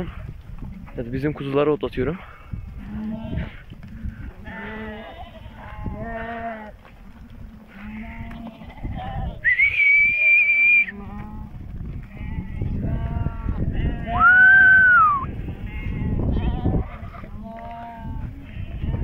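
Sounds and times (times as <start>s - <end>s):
flock of sheep bleating: 2.7s - 9.5s, 10.8s - 19.0s
long high whistle: 9.5s - 10.9s, 14.2s - 15.3s.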